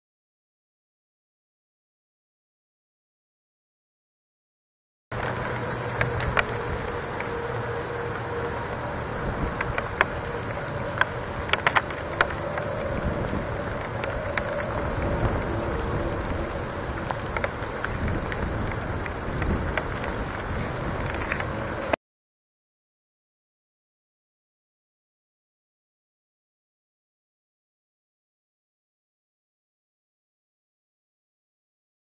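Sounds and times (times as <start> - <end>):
rain falling steadily: 5.1 - 22.0
raindrops tapping near microphone: 5.1 - 22.0.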